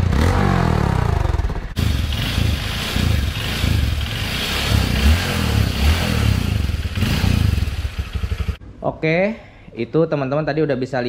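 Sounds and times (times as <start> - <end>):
motorcycle engine idling: 1.2 - 8.6.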